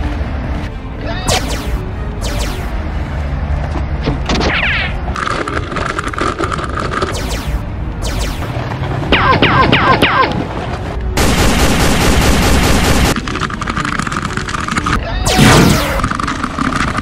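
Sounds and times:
laser gun zaps: 0:01.3 - 0:02.8, 0:07.1 - 0:10.3, 0:15.2 - 0:16.1
rapid-fire laser burst: 0:01.3 - 0:02.8, 0:07.1 - 0:10.2, 0:11.2 - 0:13.2, 0:15.3 - 0:16.1.

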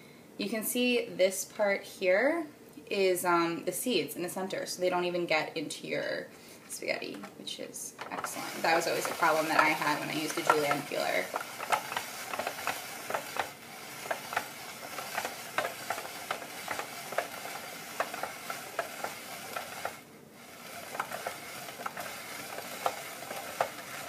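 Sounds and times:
spiral slicer shredding squash: 0:08.0 - 0:24.0.

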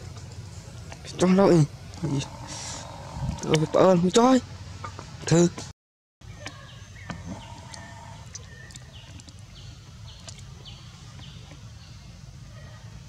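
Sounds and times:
steady low rumble: 0:00.0 - 0:04.9.

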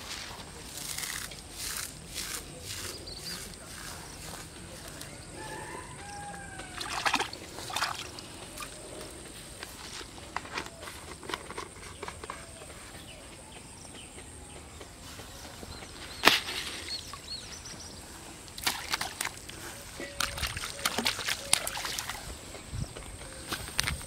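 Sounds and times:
water sloshing: 0:06.5 - 0:09.0, 0:18.4 - 0:22.4
fish splashing at surface: 0:06.7 - 0:08.3, 0:18.6 - 0:22.2.

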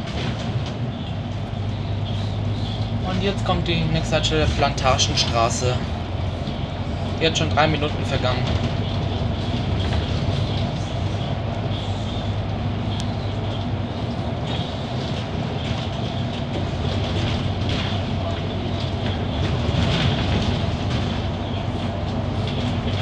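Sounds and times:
diesel engine hum: 0:00.0 - 0:23.0
road noise: 0:00.0 - 0:23.0.

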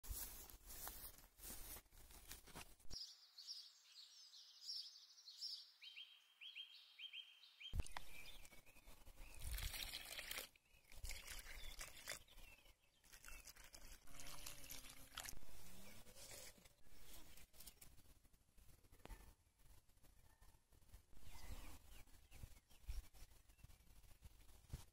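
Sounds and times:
faint rustling and crunching: 0:00.0 - 0:03.0.

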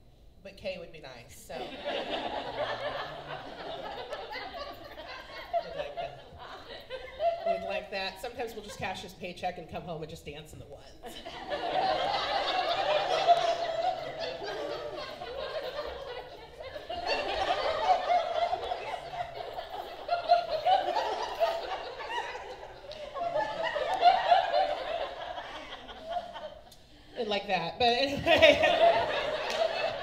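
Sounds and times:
audience laughing: 0:01.5 - 0:08.0, 0:11.0 - 0:26.7, 0:28.2 - 0:30.0.

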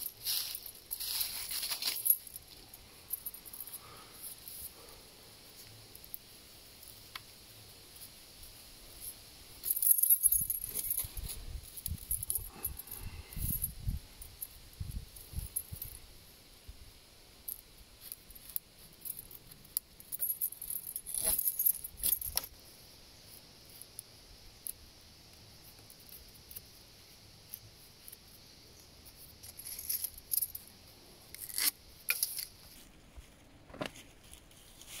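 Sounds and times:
sticks creaking snapping and rustling: 0:21.1 - 0:22.5, 0:29.1 - 0:32.9.

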